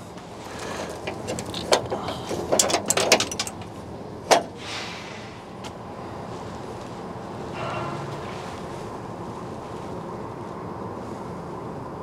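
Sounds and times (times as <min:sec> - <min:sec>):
scrap metal clattering: 0:07.4 - 0:08.8.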